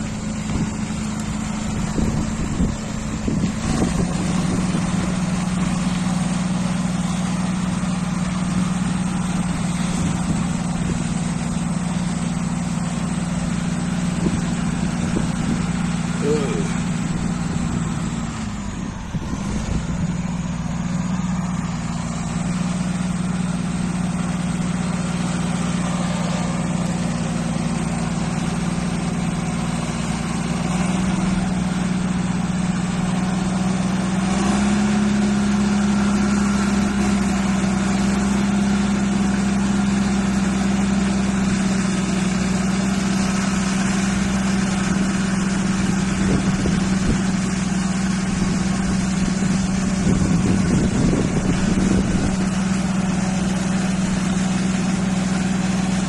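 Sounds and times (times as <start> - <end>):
diesel engine droning: 0.0 - 56.0.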